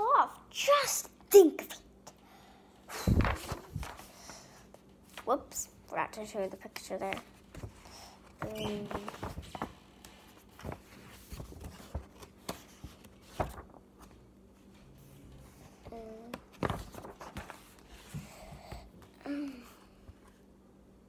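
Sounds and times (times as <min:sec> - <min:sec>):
book being handled: 0:03.2 - 0:05.3, 0:06.8 - 0:18.5
child humming: 0:19.2 - 0:20.0.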